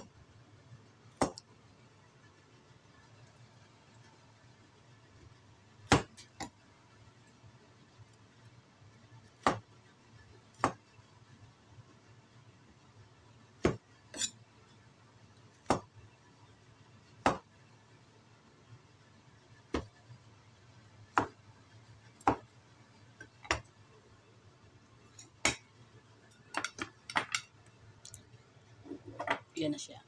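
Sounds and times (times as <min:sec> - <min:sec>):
knife chopping on wooden board: 0:05.9 - 0:06.5, 0:09.4 - 0:09.7, 0:10.6 - 0:10.8, 0:13.6 - 0:13.8, 0:15.6 - 0:15.9, 0:17.2 - 0:17.5, 0:19.7 - 0:20.0, 0:21.1 - 0:21.4, 0:22.2 - 0:22.5, 0:23.3 - 0:23.7.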